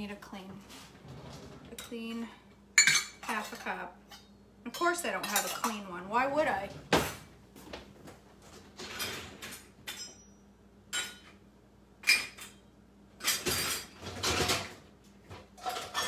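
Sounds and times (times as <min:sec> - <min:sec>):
dishes and utensils clinking: 0:02.8 - 0:05.9, 0:08.8 - 0:11.4, 0:12.0 - 0:14.8, 0:15.6 - 0:16.0.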